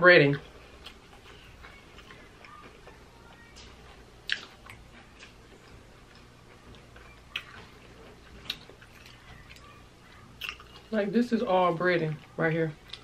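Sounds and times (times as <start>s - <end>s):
crunching of crispy food: 4.2s - 10.9s.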